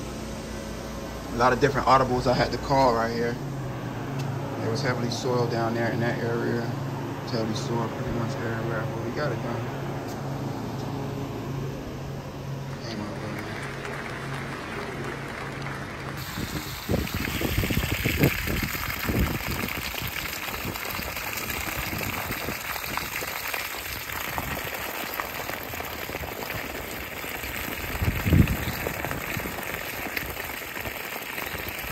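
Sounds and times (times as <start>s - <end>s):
water gushing onto dry leaves: 16.2s - 31.9s.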